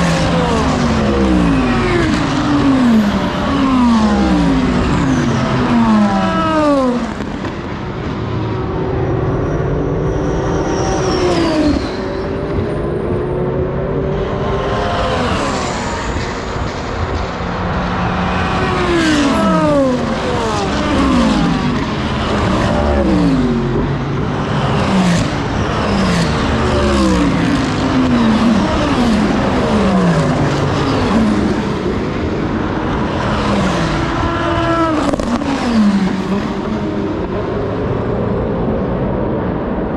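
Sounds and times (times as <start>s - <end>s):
race cars passing at full speed: 0.0s - 39.9s.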